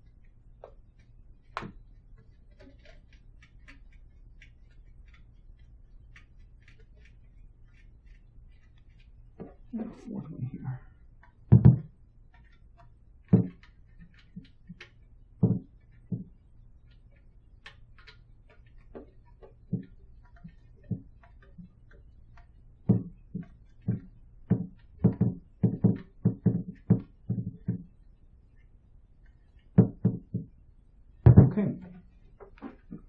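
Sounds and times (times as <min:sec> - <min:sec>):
light knocks and clicks on metal: 0:11.2 - 0:28.1.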